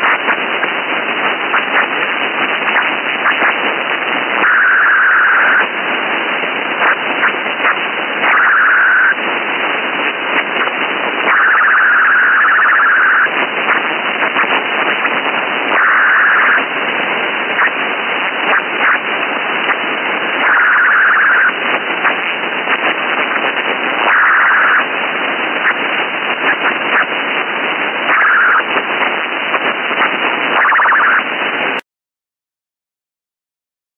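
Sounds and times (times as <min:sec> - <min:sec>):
radio static crackling hiss: 0:00.0 - 0:31.8.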